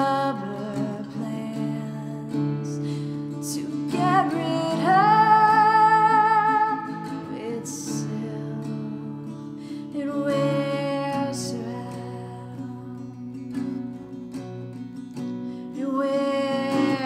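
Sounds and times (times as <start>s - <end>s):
acoustic guitar: 0.0s - 17.0s
woman singing: 0.0s - 17.0s.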